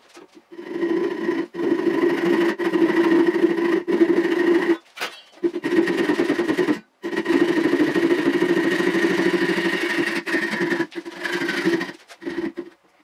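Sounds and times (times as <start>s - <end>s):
hand saw buzzing drone: 0.5s - 4.8s, 5.4s - 12.8s.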